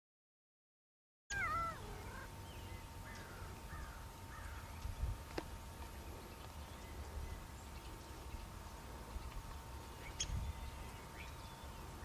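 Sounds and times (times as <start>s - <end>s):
wavering meow-like animal call: 1.3s - 2.3s.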